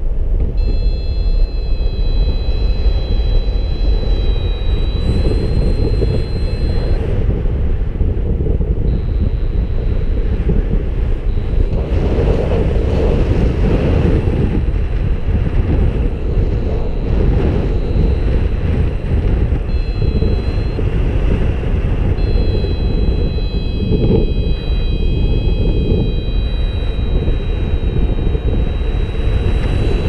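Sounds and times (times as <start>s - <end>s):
wind noise on microphone: 0.0s - 30.0s
faint high tones: 0.6s - 7.2s, 16.9s - 21.3s, 22.1s - 30.0s.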